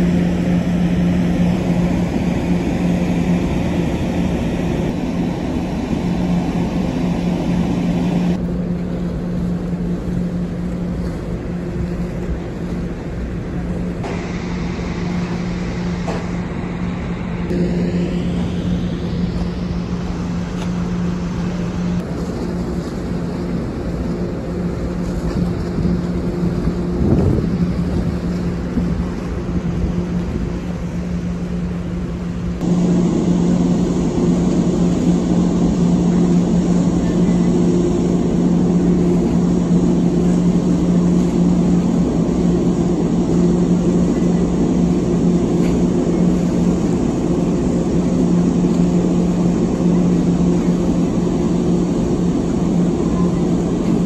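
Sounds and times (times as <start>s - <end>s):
noisy rush: 0.0s - 54.0s
ship engines humming: 0.0s - 54.0s.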